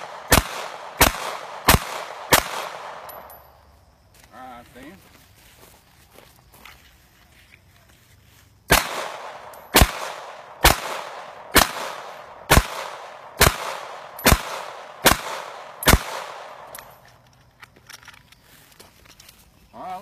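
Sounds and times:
pistol shots echoing: 0.0s - 3.4s, 8.7s - 17.0s.

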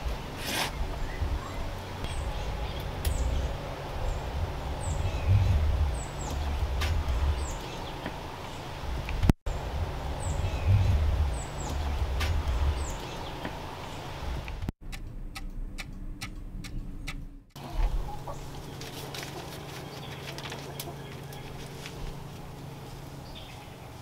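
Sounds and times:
small birds chirping: 0.0s - 14.4s, 16.7s - 24.0s
low rumble: 0.0s - 18.8s
clock ticking: 14.8s - 17.4s
chickens clucking: 17.6s - 22.9s.

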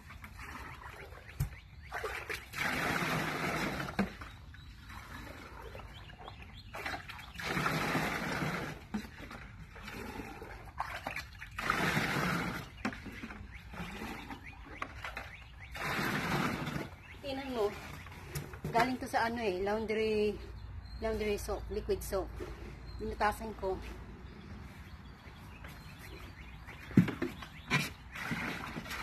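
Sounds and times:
water pouring into plastic chest: 0.0s - 5.7s, 6.8s - 14.2s, 27.7s - 29.0s
scooping water from bucket: 0.0s - 19.1s, 26.1s - 29.0s.

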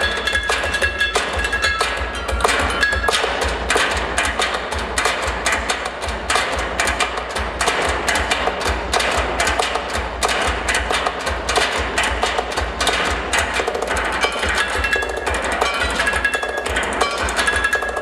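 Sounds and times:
drumming on metal drums and bins: 0.0s - 18.0s.

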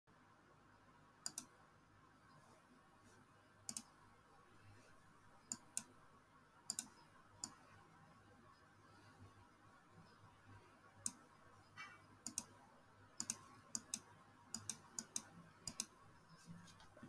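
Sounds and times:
faint room hiss: 0.1s - 17.0s
computer mouse clicking: 1.2s - 1.5s, 3.7s - 4.0s, 5.5s - 6.0s, 6.7s - 7.6s, 11.0s - 12.6s, 13.2s - 17.0s.

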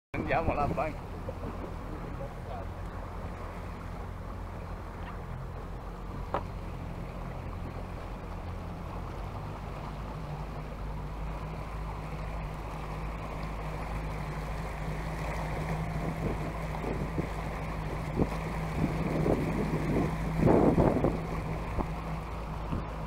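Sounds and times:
small boat motor drone: 0.2s - 23.0s
water wash: 0.2s - 23.0s
wind on microphone: 15.5s - 23.0s.

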